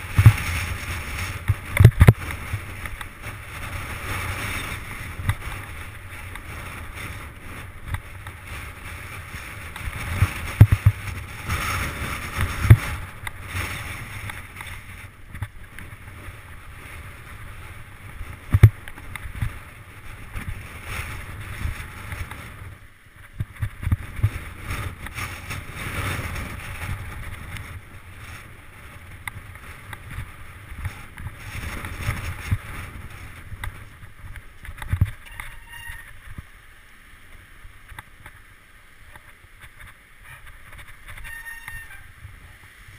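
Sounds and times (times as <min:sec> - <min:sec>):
wind on microphone: 0:00.0 - 0:36.5
bike rattling: 0:00.0 - 0:36.6, 0:37.2 - 0:42.9
bike tyres crunching on gravel: 0:00.0 - 0:42.9.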